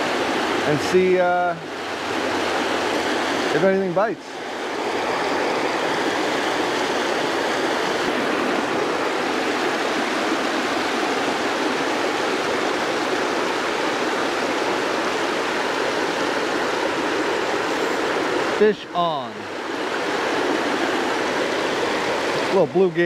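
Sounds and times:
water rushing over spillway: 0.0s - 23.0s.

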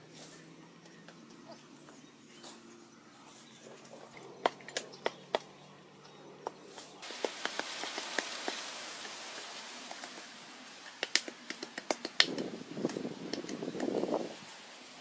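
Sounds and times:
scraping hiss in dry soil: 0.0s - 0.6s, 6.7s - 15.0s.

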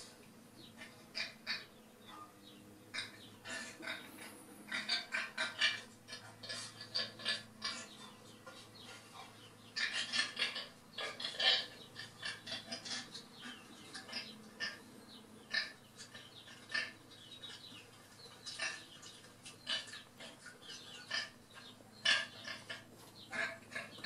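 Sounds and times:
low steady hum: 0.0s - 24.0s
chicken clucking: 0.6s - 24.0s.

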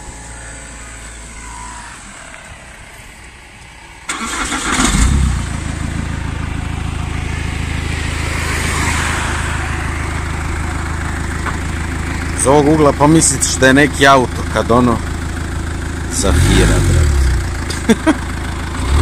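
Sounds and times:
car engine starting and idling: 0.0s - 19.0s
starter motor cranking: 4.1s - 5.2s.

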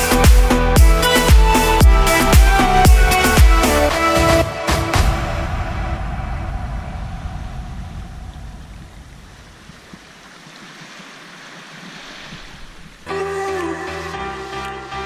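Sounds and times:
background music: 0.0s - 7.3s, 13.1s - 15.0s
rushing water: 0.0s - 15.0s.

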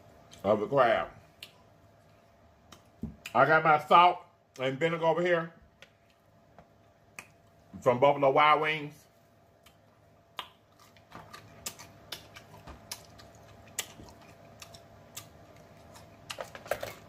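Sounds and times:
mouth chewing: 10.4s - 17.0s.

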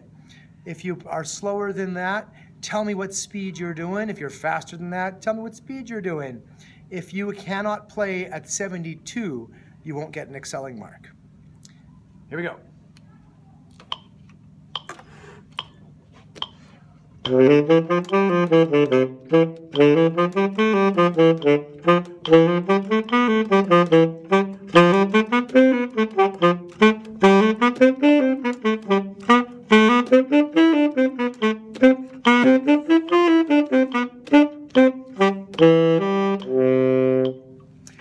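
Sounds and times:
tenor saxophone playing runs: 17.2s - 37.8s.

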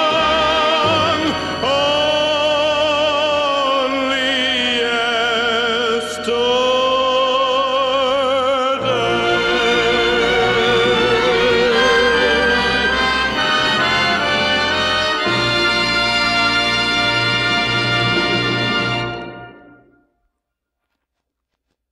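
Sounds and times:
man singing with vibrato: 0.0s - 17.1s
orchestra with strings: 0.0s - 19.9s.

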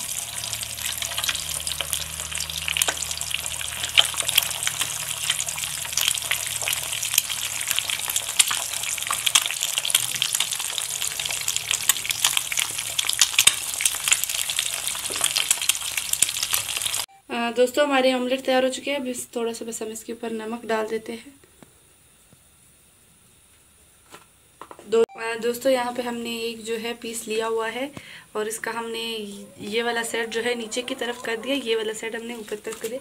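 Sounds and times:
eggs sizzling in a pan: 0.0s - 17.1s.

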